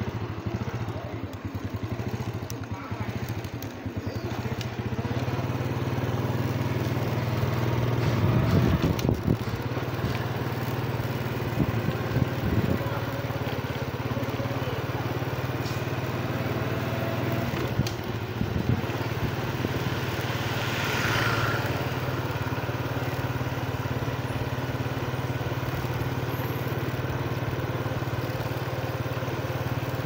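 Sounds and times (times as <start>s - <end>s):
motorbike engine humming: 0.0s - 30.0s
rush of noise: 20.3s - 22.0s.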